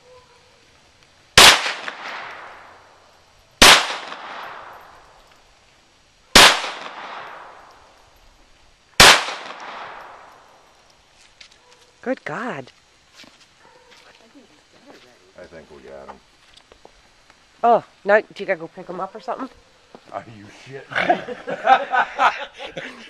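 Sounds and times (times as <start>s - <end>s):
gunshots echoing: 1.4s - 2.8s, 3.6s - 5.0s, 6.4s - 7.8s, 9.0s - 10.4s.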